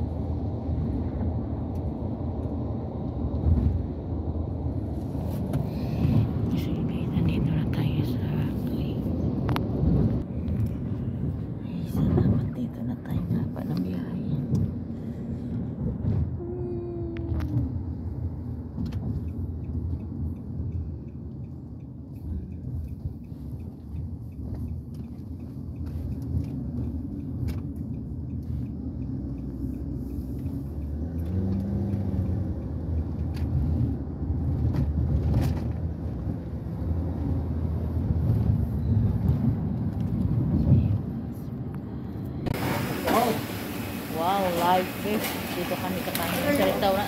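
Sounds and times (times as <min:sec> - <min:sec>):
car cabin road rumble: 0:00.0 - 0:47.0
faint regular ticking: 0:19.2 - 0:31.3.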